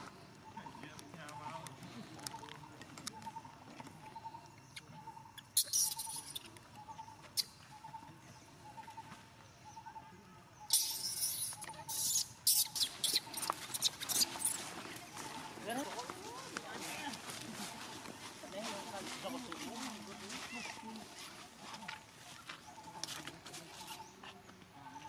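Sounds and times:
dry leaves rustling and crunching: 13.2 - 22.4.

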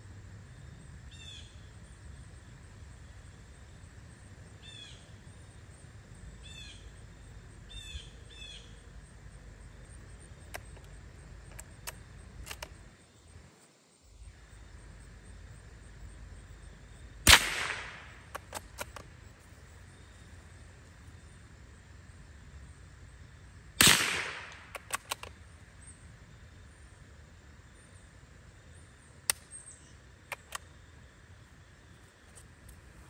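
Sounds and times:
songbird chirping: 0.6 - 23.5, 24.6 - 33.0
light metallic clicks: 10.4 - 12.9, 17.7 - 19.1, 24.4 - 25.4, 30.3 - 30.7
rifle bolt clicks: 11.5 - 12.8, 17.3 - 19.1, 23.8 - 25.4, 30.3 - 30.6
rifle shot: 17.2 - 19.0, 23.8 - 25.3.

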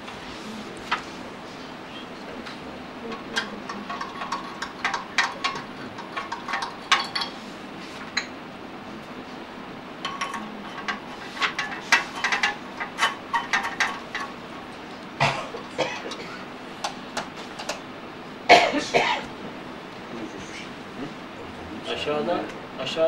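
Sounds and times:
glassware clinking: 3.1 - 7.4.

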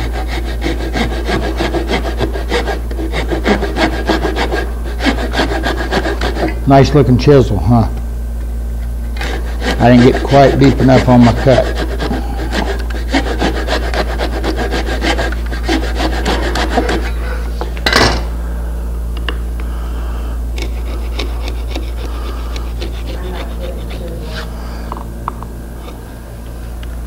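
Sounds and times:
wood chisel scraping wood: 0.0 - 6.6, 9.0 - 17.2, 20.6 - 24.5.

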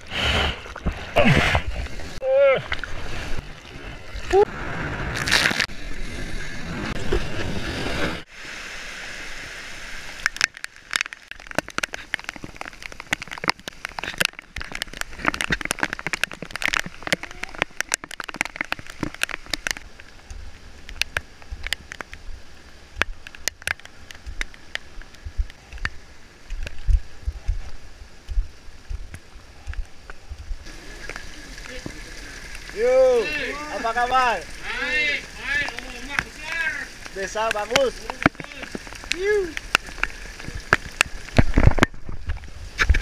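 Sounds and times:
waves: 0.0 - 43.0
heavy rain falling: 8.5 - 43.0
raindrops tapping on camera: 10.2 - 43.0.

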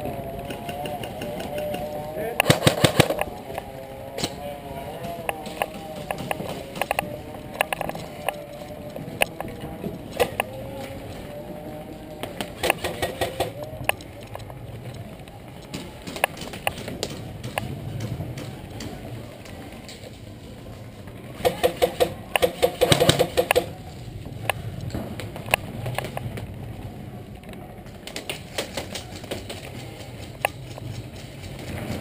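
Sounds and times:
airsoft rifle rapid burst: 2.4 - 3.2, 21.4 - 23.7.

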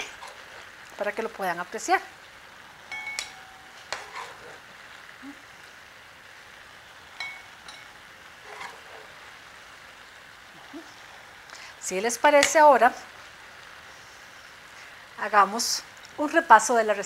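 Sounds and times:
skillet sizzling: 0.0 - 17.0
spatula clinking on glass bowl: 2.9 - 3.6, 7.2 - 7.9.

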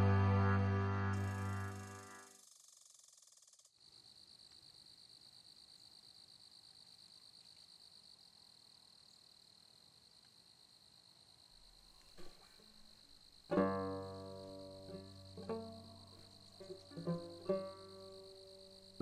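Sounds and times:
music: 0.0 - 2.4, 13.5 - 19.0
crickets chirping: 1.2 - 19.0.

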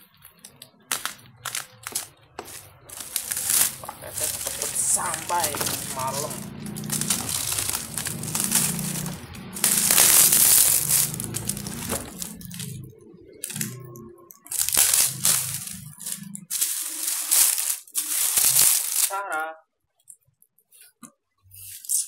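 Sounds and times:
plastic wrapping crinkling: 0.0 - 19.2
music playing: 2.7 - 19.3.

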